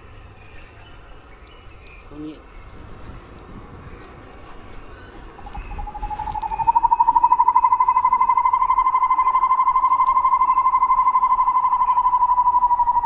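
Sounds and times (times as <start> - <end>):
cicada buzzing: 5.4 - 13.0.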